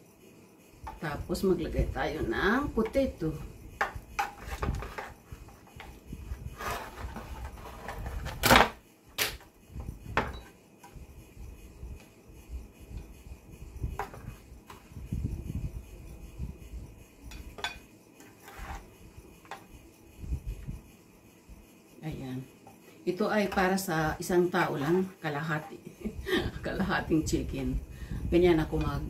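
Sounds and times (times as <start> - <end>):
spatula scraping metal tray: 4.2 - 8.3, 17.6 - 18.9.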